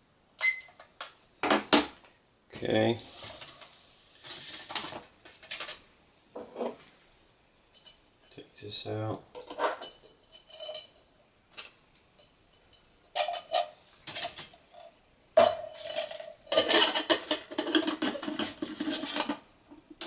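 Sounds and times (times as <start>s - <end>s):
metal pots clanking and scraping: 6.4s - 6.8s, 9.4s - 11.0s, 12.2s - 20.0s.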